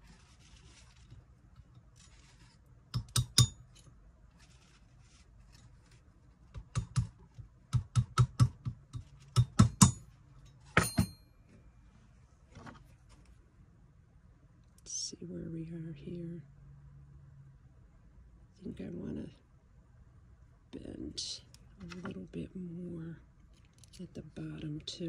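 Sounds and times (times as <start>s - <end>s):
metal taps on anvil: 10.8s - 11.2s.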